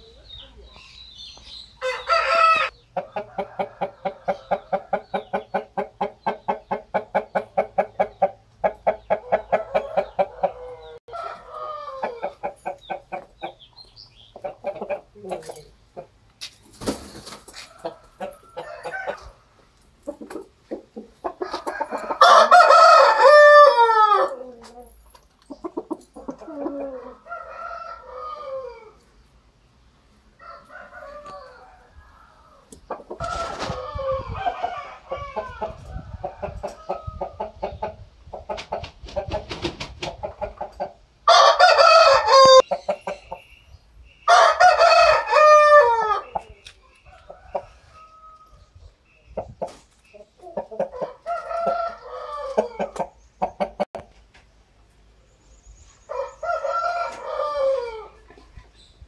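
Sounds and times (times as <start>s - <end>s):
roosters crowing: 1.8s - 13.5s, 16.8s - 19.7s, 21.2s - 24.9s, 26.2s - 29.2s, 30.2s - 37.5s, 41.2s - 43.1s, 44.2s - 48.8s, 50.4s - 53.8s, 56.0s - 58.3s
rooster clucking: 1.8s - 13.6s, 14.3s - 16.2s, 17.3s - 19.4s, 20.0s - 24.9s, 25.5s - 29.0s, 30.4s - 43.5s, 49.3s - 54.0s.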